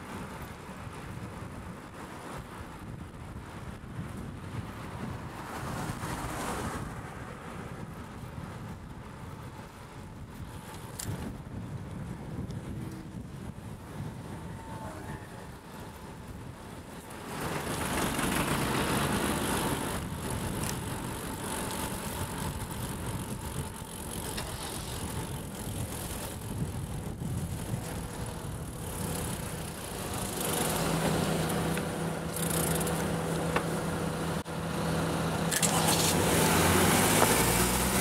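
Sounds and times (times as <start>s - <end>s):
motor vehicles passing: 17.0s - 38.0s.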